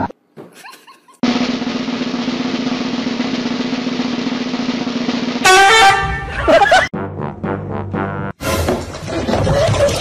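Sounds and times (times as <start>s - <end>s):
snare drum roll: 1.2s - 5.9s.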